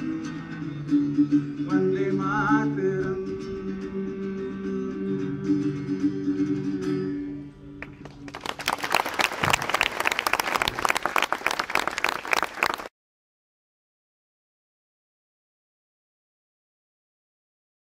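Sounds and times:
guitar chords ringing: 0.0 - 7.8
crowd applauding: 8.0 - 12.9.

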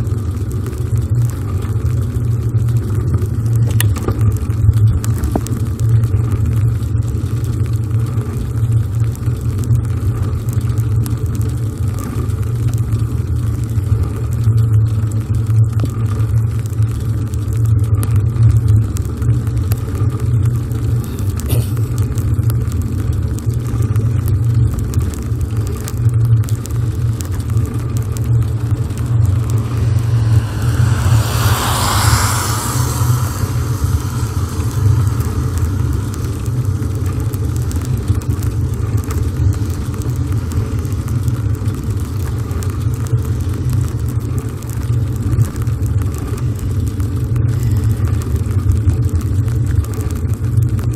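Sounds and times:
wind rumble on microphone: 0.0 - 50.9
car passing: 28.0 - 37.9.

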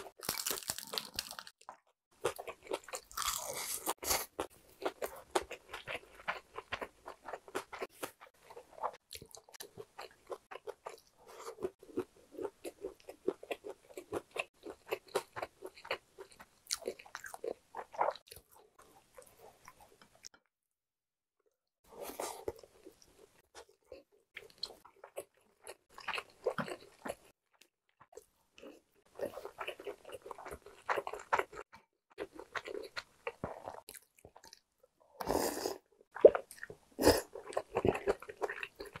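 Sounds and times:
crunchy chewing: 0.0 - 20.3, 22.0 - 34.6, 35.4 - 39.0.

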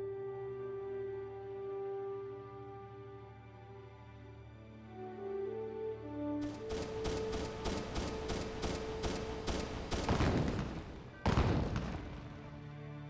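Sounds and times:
gunshots: 6.4 - 12.6.

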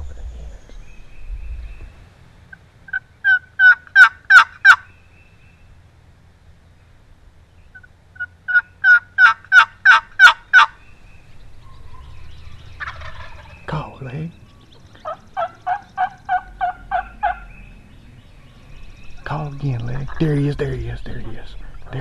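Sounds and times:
turkey box call yelping: 2.5 - 4.9, 7.7 - 10.8, 11.6 - 13.7, 14.4 - 17.7.

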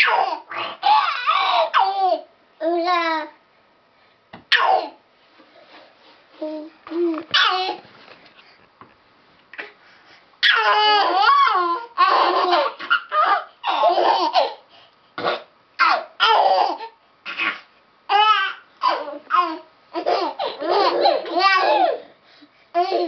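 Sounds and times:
babies babbling and laughing: 0.0 - 3.4, 6.4 - 7.8, 10.4 - 14.7, 15.8 - 22.1, 22.7 - 23.0.

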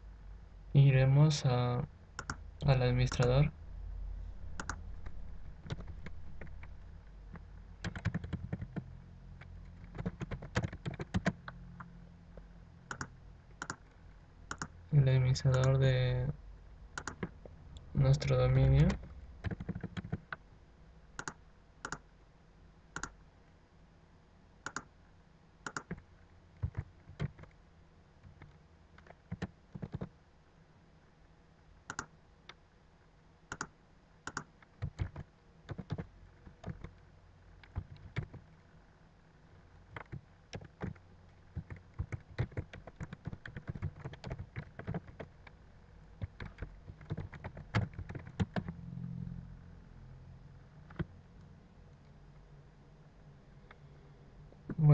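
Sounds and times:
computer keyboard typing: 2.2 - 3.5, 4.6 - 4.8, 5.6 - 6.7, 7.8 - 8.8, 9.8 - 11.4, 12.9 - 13.8, 14.5 - 14.7, 17.0 - 17.3, 18.1 - 20.4, 21.2 - 22.0, 24.7 - 24.9, 25.7 - 26.0, 26.6 - 27.5, 28.2 - 30.1, 34.3 - 36.9, 37.6 - 38.4, 39.9 - 45.3, 46.2 - 48.7.

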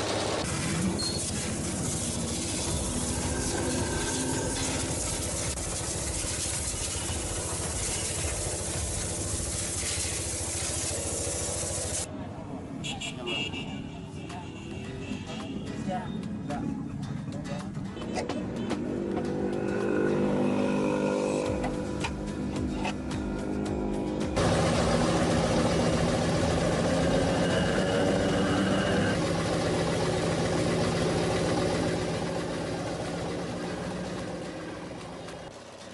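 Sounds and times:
pickup truck engine idling: 29.2 - 35.7.

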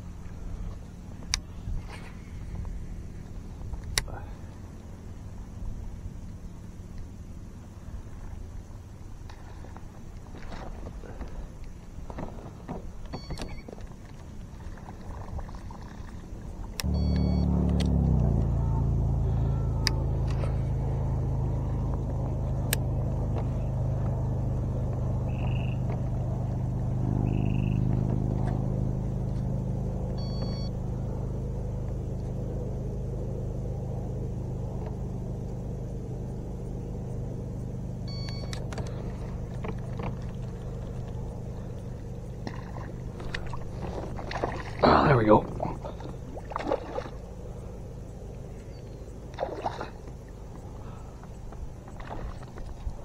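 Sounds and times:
motor humming: 0.0 - 53.0.

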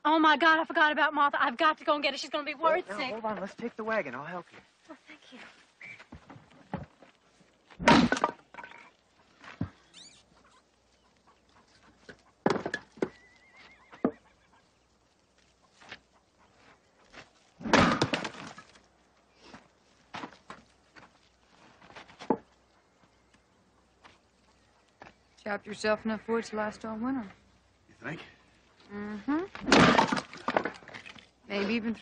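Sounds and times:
axe splitting firewood: 7.8 - 8.8, 12.0 - 13.2, 17.6 - 18.8, 29.5 - 31.2.

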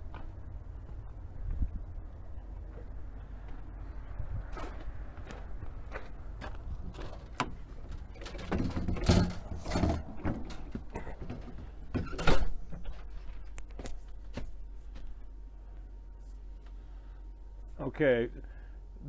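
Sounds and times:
door being handled: 7.0 - 12.9.

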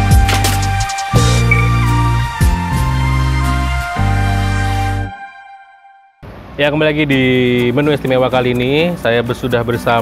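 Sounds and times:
theme music with sustained notes: 0.6 - 6.2
drum hit: 1.2 - 2.9.

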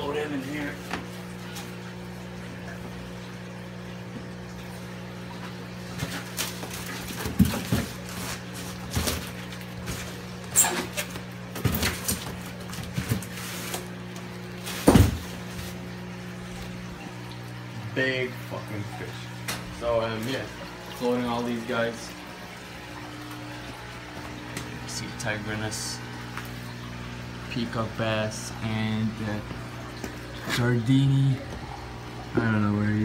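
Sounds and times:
styrofoam box knocks and scrapes: 14.7 - 15.7.

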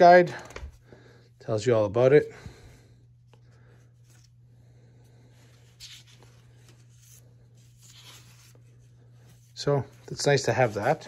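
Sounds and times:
steady low hum: 0.0 - 11.0
paper pages being turned: 5.4 - 11.0.

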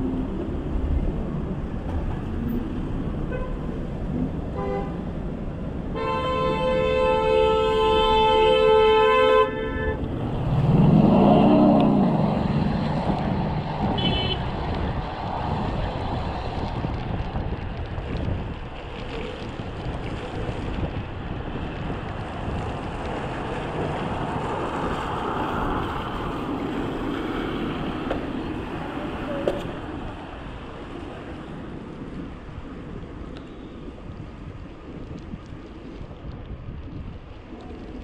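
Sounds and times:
road and traffic noise: 0.0 - 38.0
wind buffeting microphone: 0.0 - 38.0
vehicle passing loudly: 10.0 - 15.9.

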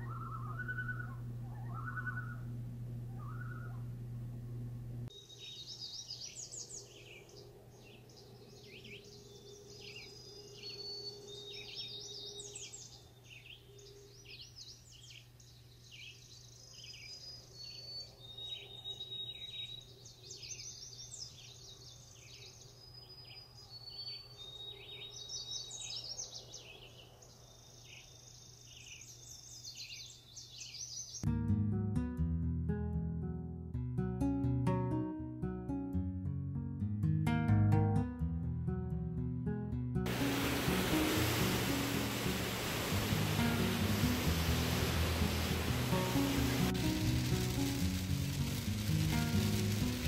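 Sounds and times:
birds chirping and trilling: 0.0 - 2.5, 3.1 - 3.9, 5.1 - 31.2, 40.1 - 48.4
faint background hiss: 40.1 - 50.0.

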